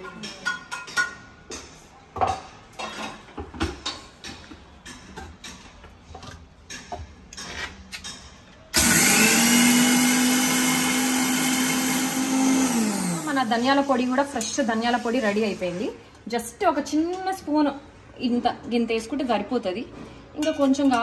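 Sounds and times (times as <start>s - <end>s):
electric mixer grinder whining: 8.8s - 15.8s.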